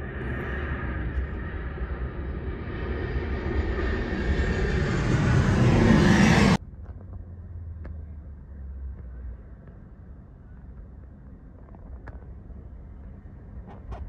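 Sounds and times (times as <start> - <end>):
jet airliner passing overhead: 0.0 - 6.6
low rumble: 0.0 - 9.9.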